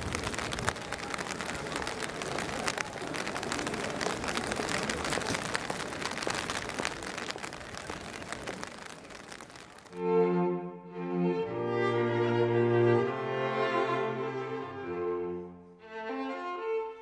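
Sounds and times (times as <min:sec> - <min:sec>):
rain falling on pavement: 0:00.0 - 0:10.0.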